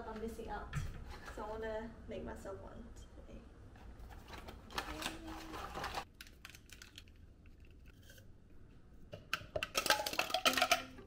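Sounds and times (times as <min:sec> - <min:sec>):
hard objects clicking and clinking: 0:09.2 - 0:11.0.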